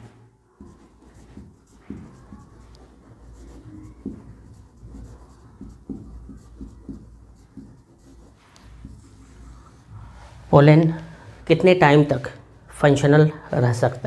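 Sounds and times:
pen writing strokes: 0:00.0 - 0:10.3.

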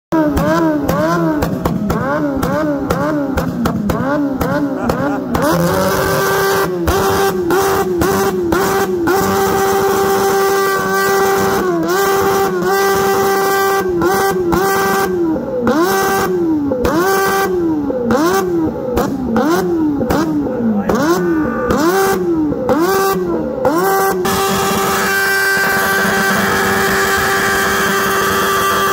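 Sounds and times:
motorcycle engine revving: 0:00.1 - 0:28.9.

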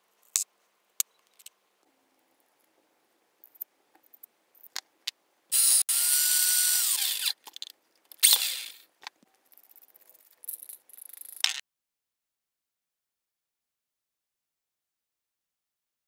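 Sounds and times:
electric drill whining: 0:05.5 - 0:07.4, 0:08.2 - 0:08.8
small metal parts clicking: 0:07.0 - 0:08.8, 0:09.4 - 0:11.6.

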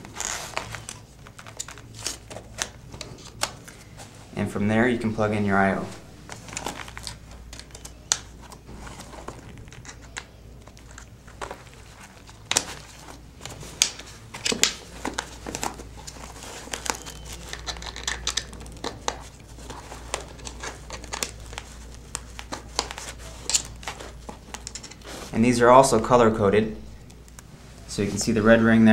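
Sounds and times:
nylon fabric rustling: 0:00.0 - 0:04.4, 0:18.9 - 0:25.7
cable connectors clicking: 0:16.0 - 0:19.2.

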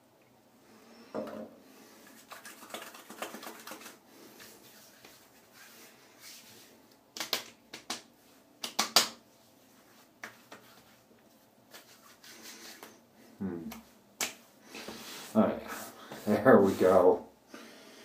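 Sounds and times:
hands slapping skin: 0:02.2 - 0:04.0, 0:07.1 - 0:09.2, 0:10.2 - 0:10.9, 0:11.7 - 0:13.0, 0:13.7 - 0:14.5.

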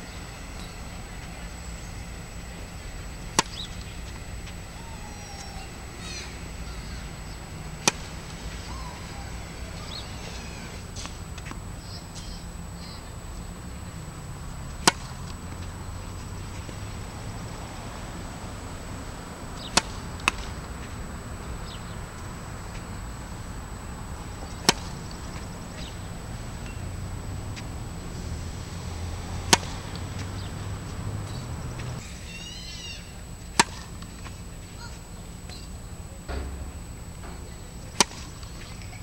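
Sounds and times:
tennis racket hitting ball: 0:02.7 - 0:04.8, 0:05.4 - 0:11.6, 0:14.7 - 0:15.4, 0:19.6 - 0:21.0, 0:24.3 - 0:26.0, 0:27.5 - 0:32.0, 0:33.5 - 0:34.2, 0:36.3 - 0:38.9
knock: 0:36.3 - 0:37.5.

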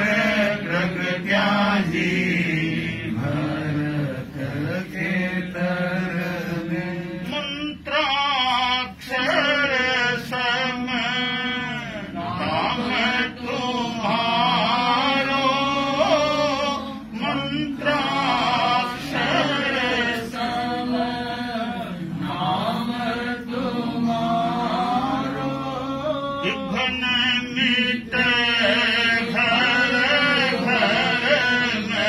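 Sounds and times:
man singing devotional hymn: 0:00.0 - 0:32.0.

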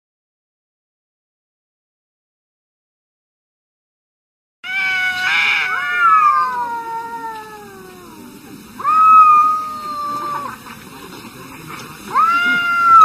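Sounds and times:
cats yowling: 0:04.6 - 0:10.6, 0:12.1 - 0:13.0.

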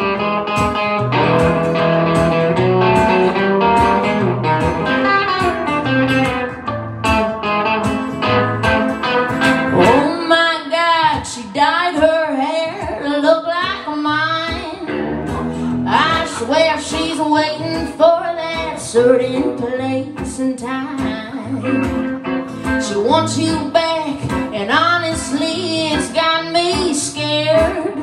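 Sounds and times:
acoustic guitar strumming: 0:00.0 - 0:12.0, 0:12.8 - 0:28.0
lead guitar fills: 0:00.0 - 0:28.0
woman singing: 0:09.8 - 0:15.0, 0:15.7 - 0:28.0.

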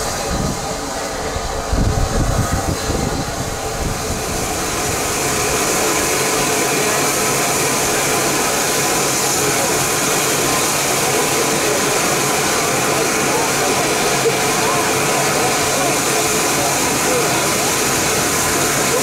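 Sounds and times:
steam hiss: 0:00.0 - 0:19.0
train low uneven rumble: 0:00.0 - 0:19.0.

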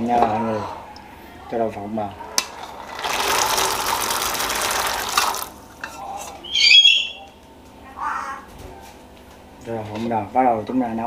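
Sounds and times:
peanuts poured into water: 0:02.5 - 0:05.6
bird squawking: 0:06.4 - 0:07.4.

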